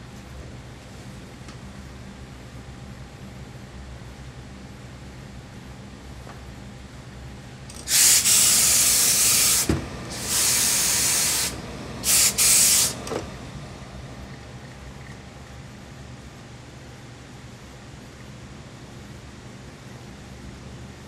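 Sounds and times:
steam iron hissing: 7.8s - 13.1s.

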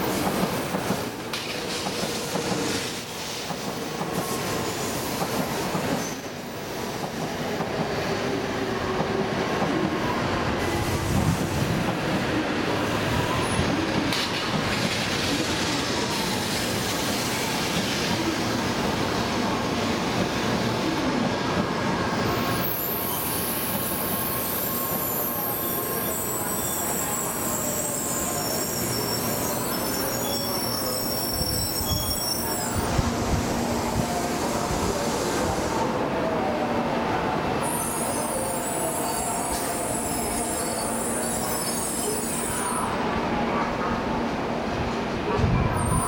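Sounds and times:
train wheels rumbling on rails: 0.0s - 8.2s, 8.8s - 35.9s
high-pitched brake squeal: 5.9s - 6.4s, 22.2s - 33.0s, 37.6s - 43.0s, 45.6s - 46.0s.

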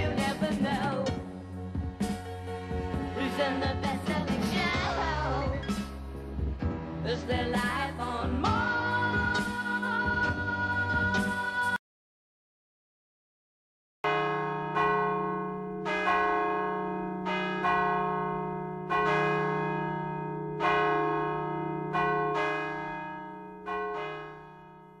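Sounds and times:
large church bells ringing: 14.1s - 25.0s.

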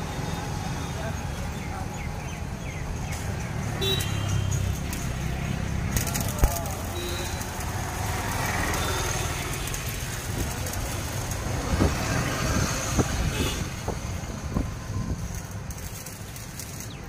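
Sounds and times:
arc welding crackling hiss: 2.9s - 17.0s.

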